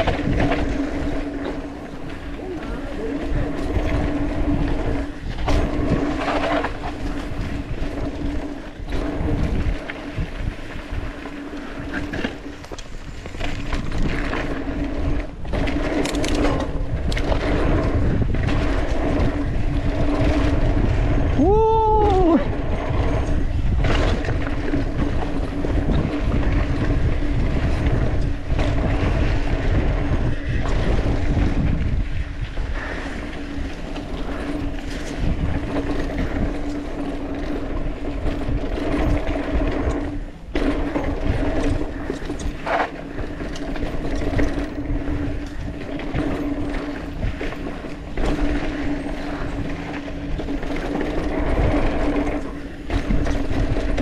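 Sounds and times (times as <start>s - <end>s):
bike rattling and clicking: 0.0s - 54.0s
steady low hum: 0.0s - 54.0s
tyres rumbling over dirt: 0.0s - 54.0s
wind on microphone: 0.0s - 54.0s.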